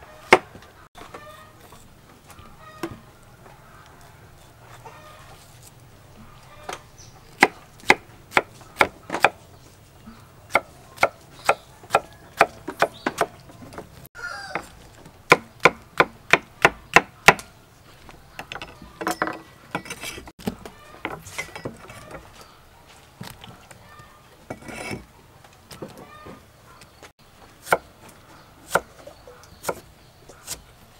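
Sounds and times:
knife chopping on wooden board: 7.4s - 9.4s, 10.5s - 13.4s.

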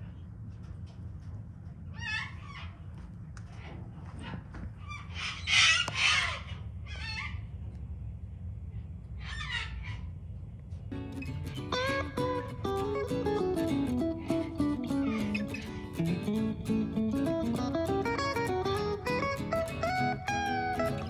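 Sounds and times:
low steady rumble: 0.0s - 21.0s
cockatoos screeching: 4.8s - 7.5s, 9.2s - 10.1s, 13.6s - 16.0s.

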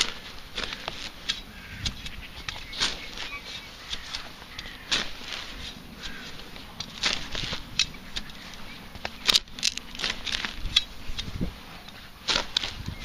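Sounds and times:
footsteps through grass: 0.0s - 13.0s.

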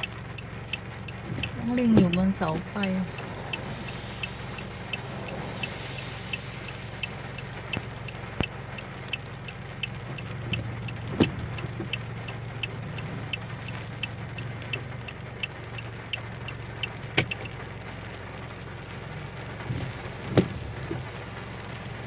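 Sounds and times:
car indicator ticking: 0.0s - 17.6s
rain on car: 0.0s - 22.0s.

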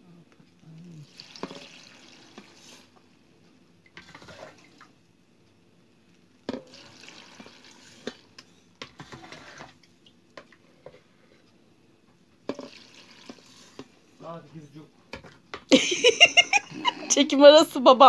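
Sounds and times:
water splashing and trickling: 0.8s - 2.9s, 6.6s - 8.3s.

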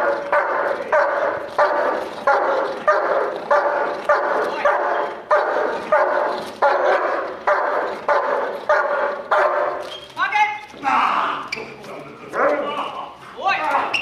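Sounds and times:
dog barking: 0.0s - 9.8s.

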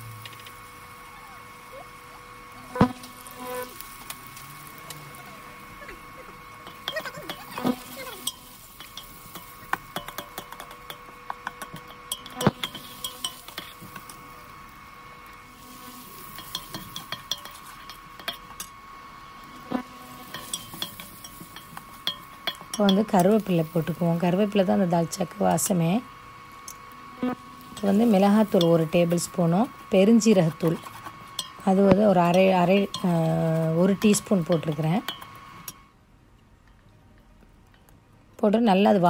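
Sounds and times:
faint sizzle of frying: 0.0s - 35.8s
faint steady hum: 0.0s - 39.0s
ladle clicking and scraping pan: 8.2s - 14.2s, 16.2s - 18.7s, 20.2s - 23.4s.

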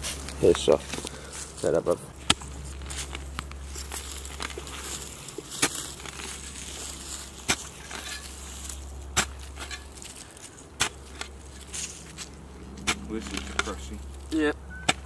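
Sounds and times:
soil and leaves crunching: 0.0s - 15.0s.

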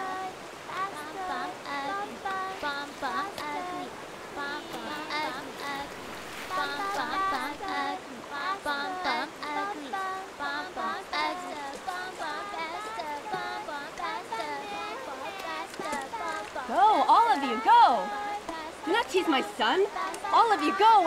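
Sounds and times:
river flowing over rocks: 0.0s - 21.0s
women and children talking: 14.4s - 21.0s.

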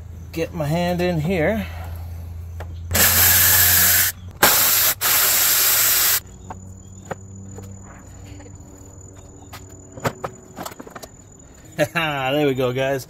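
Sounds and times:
cordless ratchet running: 2.9s - 6.2s.

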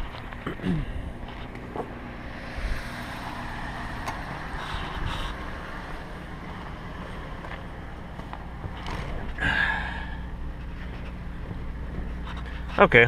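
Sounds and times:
low rumble and hiss: 0.0s - 13.0s
footsteps on gravel: 6.4s - 9.4s.

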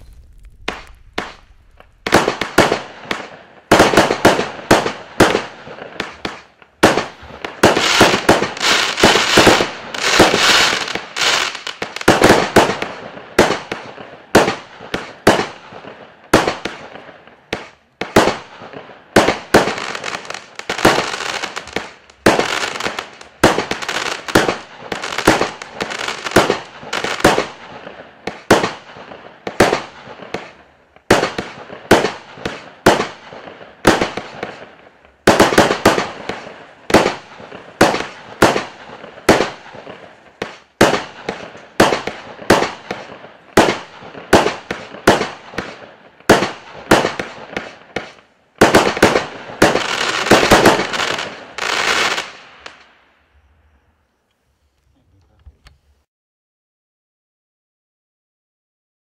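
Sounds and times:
firework hiss: 0.0s - 2.9s
firework bangs: 0.0s - 53.0s.

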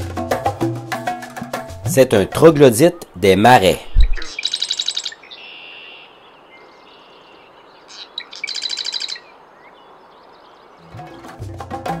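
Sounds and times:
marsh wren singing trills: 2.0s - 11.5s.

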